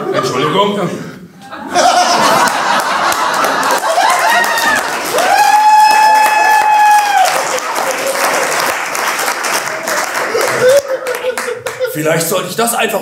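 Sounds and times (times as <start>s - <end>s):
audience applauding: 1.9s - 12.4s
person cheering: 3.8s - 8.4s, 10.3s - 11.9s.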